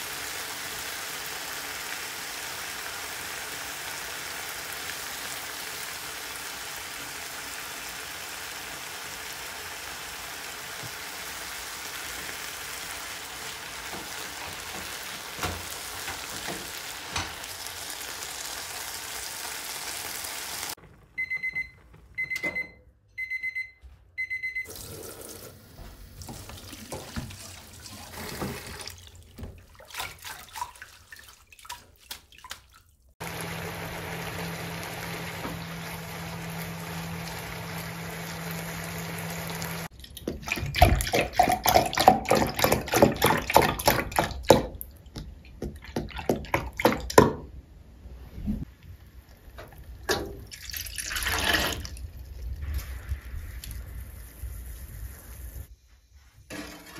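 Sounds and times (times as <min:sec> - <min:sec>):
chicken sizzling in a frying pan: 0:00.0 - 0:20.8, 0:33.2 - 0:39.9
short electronic beeps: 0:21.2 - 0:24.7
water running into a steel sink: 0:24.7 - 0:44.8, 0:49.7 - 0:55.7.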